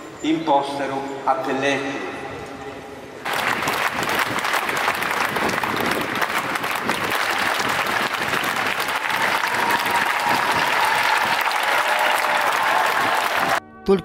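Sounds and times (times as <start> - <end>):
crowd applauding: 3.2 - 13.6.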